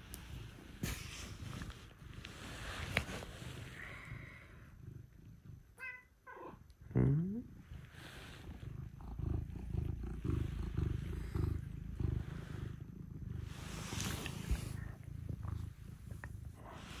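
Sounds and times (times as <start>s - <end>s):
cat purring: 0.0s - 17.0s
cat meowing: 5.8s - 6.6s.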